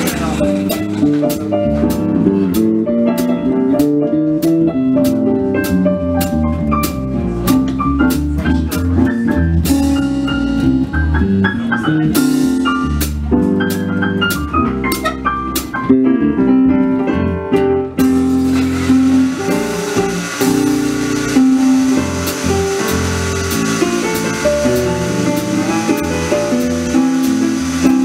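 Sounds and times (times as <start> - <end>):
electric bass line: 0.0 - 28.0
jazz piano: 0.0 - 28.0
steady hiss: 18.2 - 28.0.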